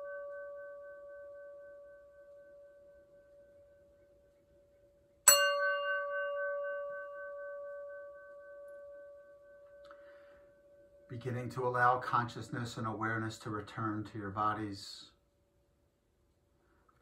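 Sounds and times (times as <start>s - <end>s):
singing bowl ringing: 0.0s - 11.2s.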